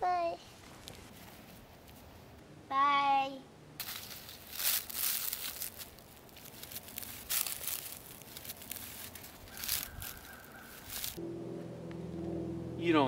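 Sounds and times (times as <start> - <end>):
footsteps crunching through dry leaves: 3.8 - 11.2.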